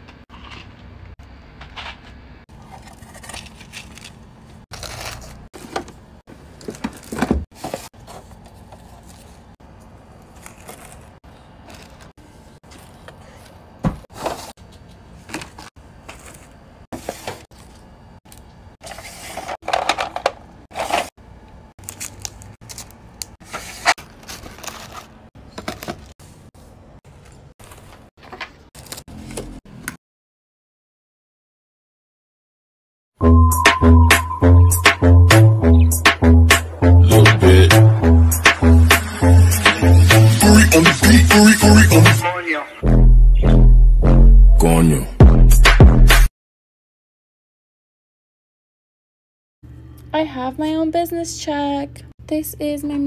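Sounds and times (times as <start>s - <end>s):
hands rustling packaging: 2.5s - 16.5s, 21.8s - 26.4s.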